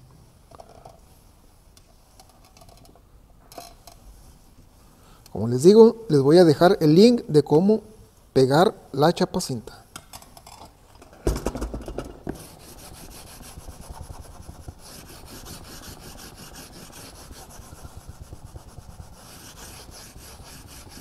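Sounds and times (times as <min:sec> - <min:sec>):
knock and clatter: 0:11.2 - 0:12.4.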